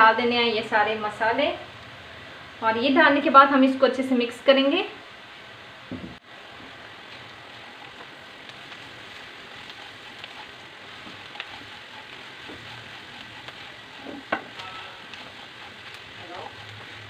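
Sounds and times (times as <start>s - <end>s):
vegetables sizzling in hot oil: 0.0s - 17.0s
spatula scraping pan: 7.0s - 17.0s.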